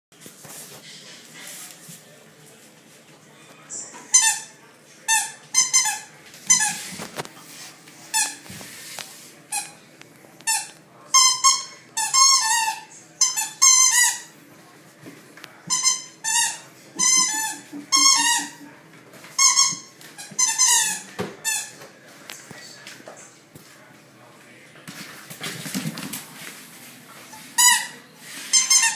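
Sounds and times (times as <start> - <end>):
squeaky toy squeaks: 15.7 - 18.6.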